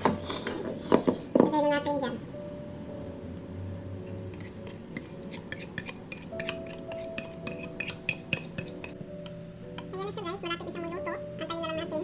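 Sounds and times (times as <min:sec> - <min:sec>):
soft background music: 0:00.0 - 0:12.0
utensil scraping a mixing bowl: 0:04.3 - 0:09.0.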